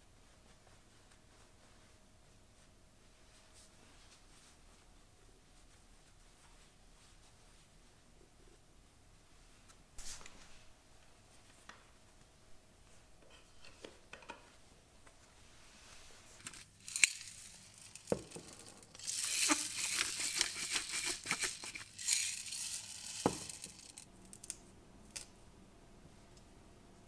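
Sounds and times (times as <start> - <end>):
dense crackling crinkling noise: 14.6 - 24.5.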